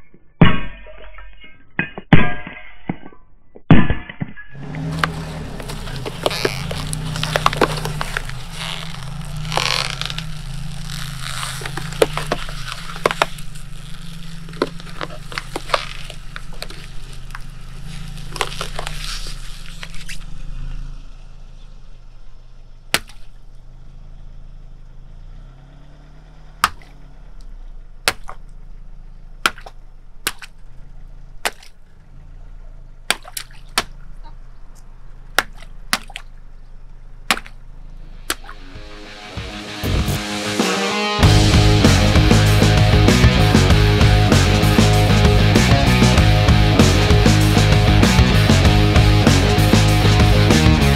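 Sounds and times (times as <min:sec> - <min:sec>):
tyre crushing plastic cartons: 0:04.6 - 0:20.2.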